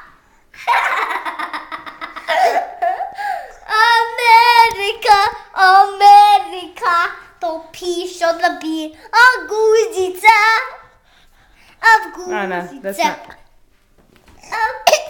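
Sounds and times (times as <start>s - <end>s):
child giggling: 0.6s - 3.8s
girl singing wordless notes: 3.5s - 11.0s.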